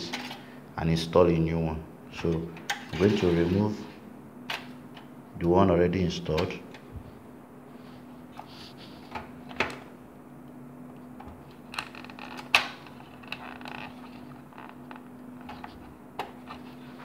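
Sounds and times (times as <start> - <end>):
low steady hum: 0.0 - 17.0
clicks and knocks of computer parts: 9.1 - 9.9, 11.2 - 13.9.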